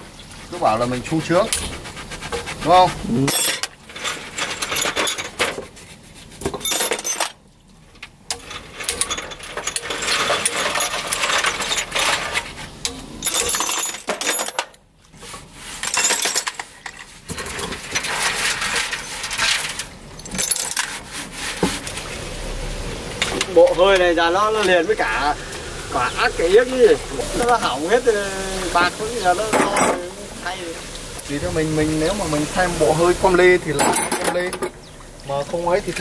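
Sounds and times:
hand tools clinking on metal: 0:03.2 - 0:05.6, 0:06.5 - 0:07.4, 0:08.3 - 0:14.8, 0:15.8 - 0:21.0, 0:33.7 - 0:34.8.

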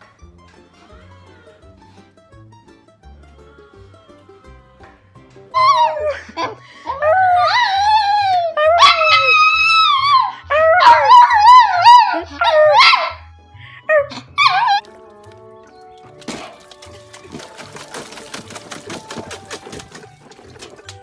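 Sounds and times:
background music with bass line: 0:00.0 - 0:06.5
dog howling: 0:05.5 - 0:13.3, 0:13.9 - 0:14.9.

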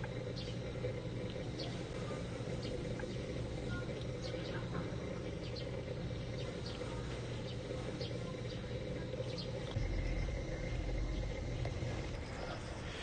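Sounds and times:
low background hum: 0:00.0 - 0:13.0
low rumble: 0:09.6 - 0:13.0.

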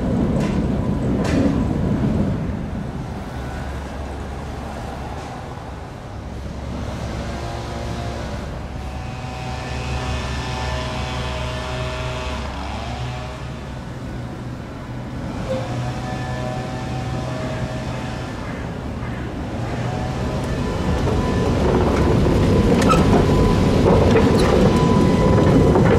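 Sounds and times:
tram moving slowly: 0:00.0 - 0:25.9.

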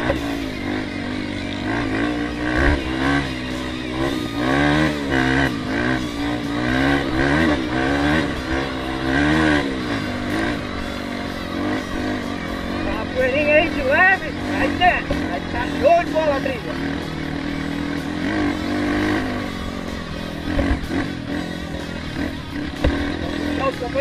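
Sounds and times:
dirt bike engine revving: 0:00.0 - 0:24.0.

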